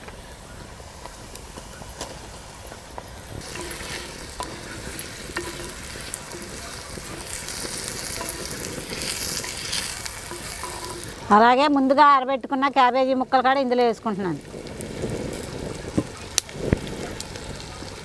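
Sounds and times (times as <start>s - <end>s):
tomatoes sizzling in hot oil: 0.0s - 18.0s
spoon tapping a pot: 3.4s - 11.3s.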